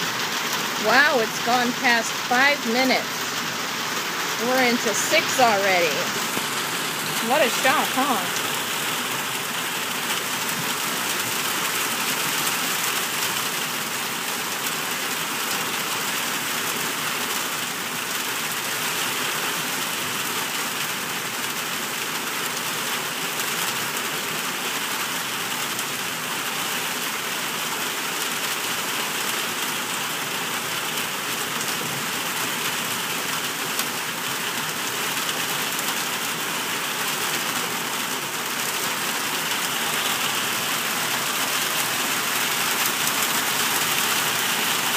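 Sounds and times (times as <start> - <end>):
heavy rain on pavement: 0.0 - 44.9.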